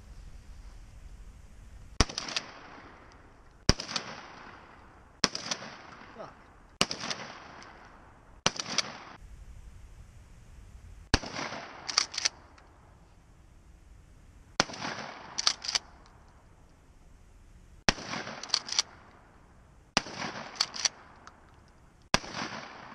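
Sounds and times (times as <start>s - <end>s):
shotgun shots: 2.0s - 3.1s, 3.7s - 9.2s, 11.1s - 12.5s, 14.6s - 15.9s, 17.9s - 19.1s, 20.0s - 21.2s, 22.1s - 22.9s
shotgun pump racking: 11.9s - 12.4s, 15.4s - 15.9s, 18.4s - 18.9s, 20.6s - 21.7s.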